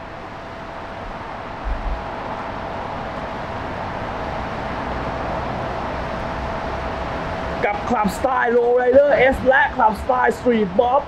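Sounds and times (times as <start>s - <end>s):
mid-pitched hum: 0.0s - 11.0s
urban background noise: 0.0s - 11.0s
low thump: 1.6s - 2.0s.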